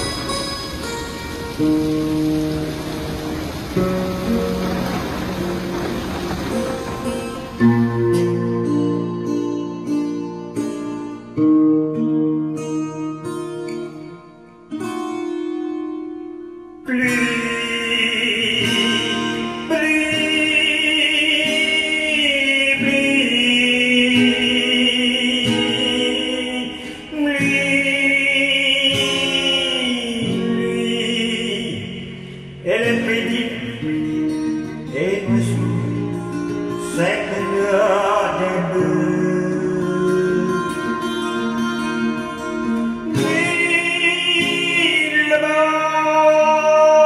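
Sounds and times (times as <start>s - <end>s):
instrumental accompaniment: 0.0s - 26.6s
man singing slow song: 16.8s - 47.0s.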